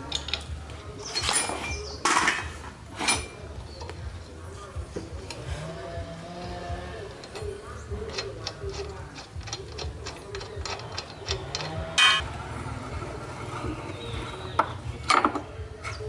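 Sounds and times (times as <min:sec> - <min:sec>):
ratcheting wrench clicking: 0:07.0 - 0:12.2
ringing metal clink: 0:07.2 - 0:12.2.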